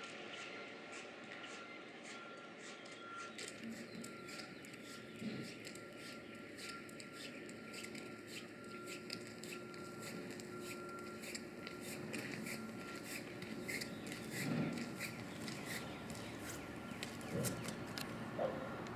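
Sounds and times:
footsteps on gravel: 7.5 - 18.6.

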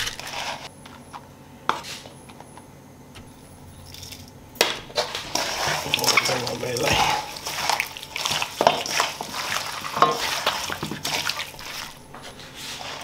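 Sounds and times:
wet squelches of mixing meat: 5.0 - 13.0.

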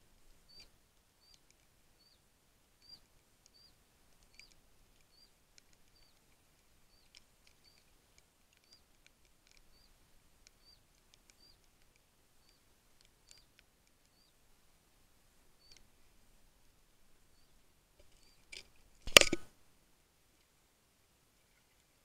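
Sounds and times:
faint clicks: 0.1 - 2.2, 2.8 - 14.5, 15.6 - 16.0
small animal chirping: 0.5 - 2.2, 2.8 - 6.3, 6.9 - 8.0, 8.6 - 11.7, 12.4 - 14.4, 15.6 - 15.8.

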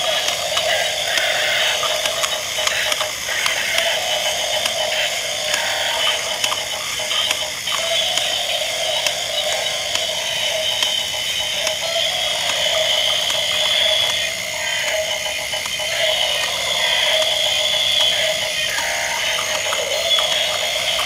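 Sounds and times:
toy motors whirring and clicking: 0.0 - 21.0.

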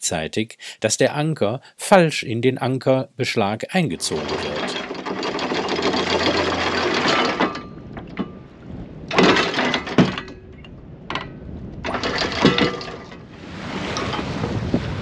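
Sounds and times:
anchor windlass hauling chain: 3.8 - 14.6
anchor clunking against metal: 3.9 - 8.4, 9.1 - 13.3.

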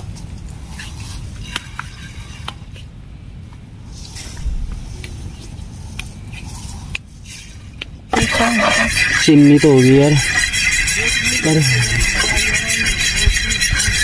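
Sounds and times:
gas burner rumbling: 5.8 - 14.0.

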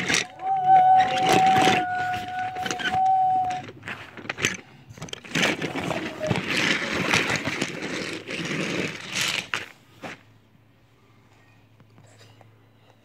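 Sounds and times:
toy train clattering on track: 0.0 - 9.7.

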